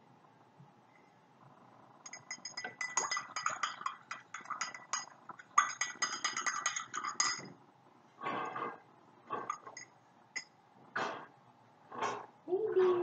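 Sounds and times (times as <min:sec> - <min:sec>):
spoon clinking in glass: 0:02.1 - 0:07.5.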